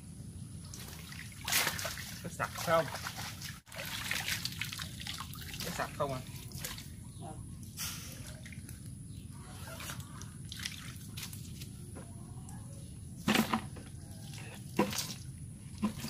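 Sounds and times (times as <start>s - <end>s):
water dripping and splashing: 0.6s - 7.0s, 8.1s - 8.9s, 9.8s - 11.7s
loud splashes: 0.9s - 6.8s.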